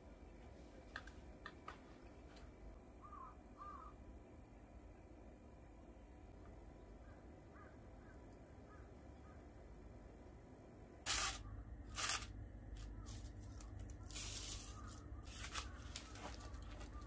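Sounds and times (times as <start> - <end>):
aluminium foil crinkling: 11.1 - 17.0.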